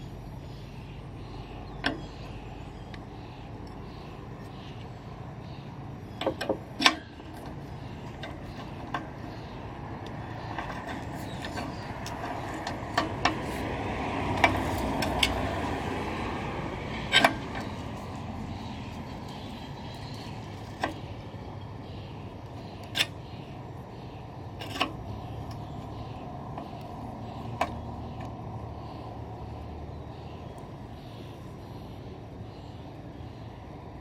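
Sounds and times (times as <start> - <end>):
vehicle passing rumble: 0.0 - 34.0
tools and parts clicking: 6.2 - 9.4, 10.0 - 13.7, 14.3 - 15.7, 17.0 - 21.7, 22.4 - 23.3.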